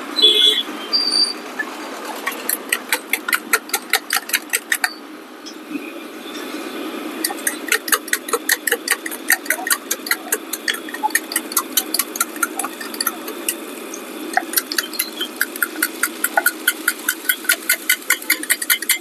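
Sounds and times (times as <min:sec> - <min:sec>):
spoon clinking in steel tumbler: 0:02.2 - 0:05.0, 0:07.2 - 0:13.6, 0:14.3 - 0:19.0.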